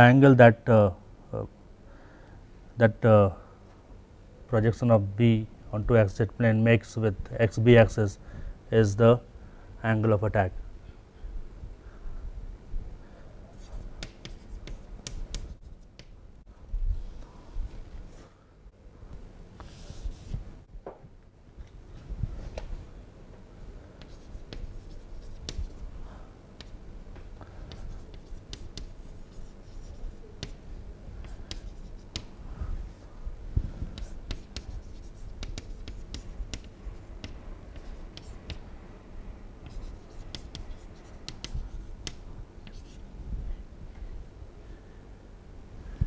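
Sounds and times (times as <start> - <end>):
low room rumble: 0.0 - 46.0
chalk tapping and scratching: 13.5 - 16.2, 24.0 - 25.9, 26.6 - 33.1, 33.7 - 38.7, 39.6 - 43.0.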